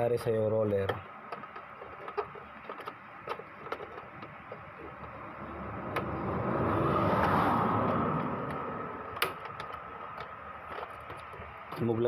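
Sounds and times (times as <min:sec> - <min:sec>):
plastic parts clicking: 0:00.7 - 0:05.2.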